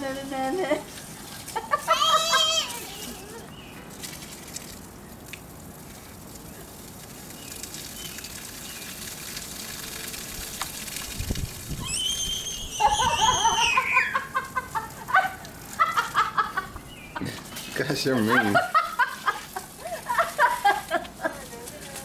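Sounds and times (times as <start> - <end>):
garden hose spraying water: 0.0 - 22.0
child squealing: 1.8 - 3.5, 11.7 - 14.4.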